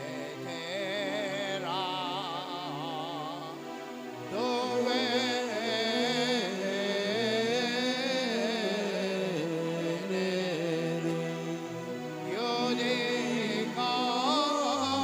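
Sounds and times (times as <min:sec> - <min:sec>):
person singing a hymn: 0:00.0 - 0:15.0.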